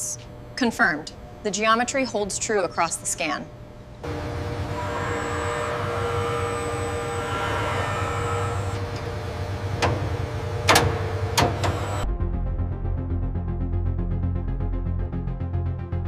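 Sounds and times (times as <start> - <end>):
industrial machinery hum: 0.0 - 12.2
high whine: 3.6 - 12.1
music: 12.0 - 16.0.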